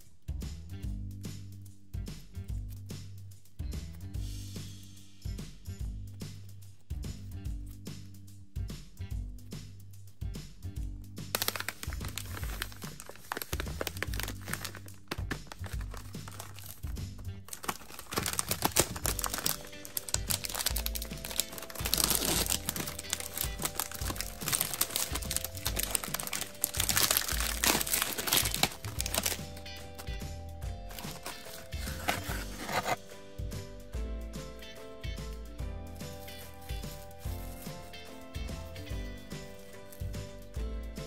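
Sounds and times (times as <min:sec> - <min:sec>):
background music: 0:00.0 - 0:41.0
plastic packaging crinkling: 0:11.3 - 0:30.2, 0:30.9 - 0:33.0, 0:36.1 - 0:38.3, 0:39.4 - 0:40.2.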